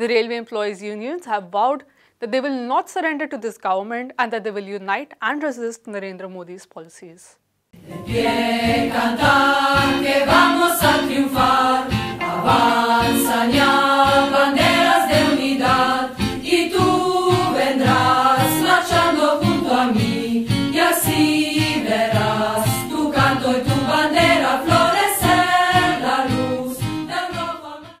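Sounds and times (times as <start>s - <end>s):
steady beat: 7.8s - 15.9s
choir singing a marching song: 7.8s - 28.0s.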